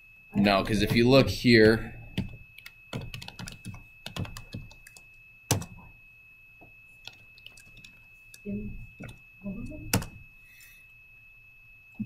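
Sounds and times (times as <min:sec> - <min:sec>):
keyboard typing clicks: 0:02.2 - 0:05.9, 0:07.0 - 0:08.4, 0:09.0 - 0:10.2.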